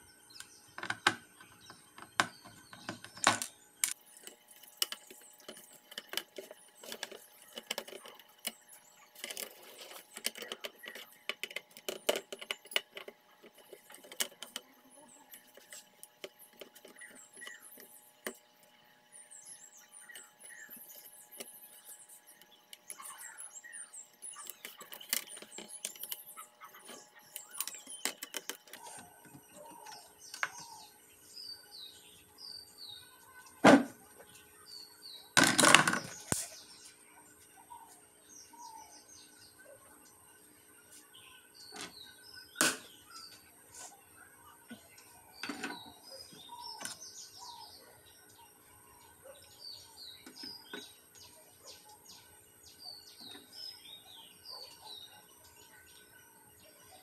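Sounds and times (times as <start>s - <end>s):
birds chirping: 0.0s - 57.0s.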